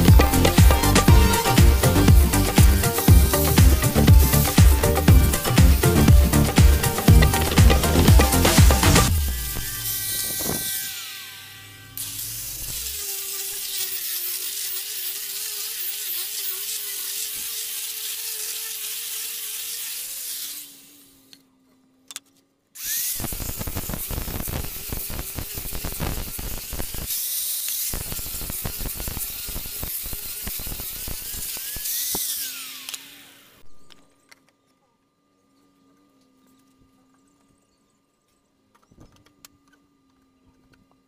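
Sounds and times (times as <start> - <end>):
rapid clicking of sander: 0.0 - 11.3, 22.8 - 33.4
angle grinder sanding wood: 0.0 - 21.3, 22.8 - 33.6.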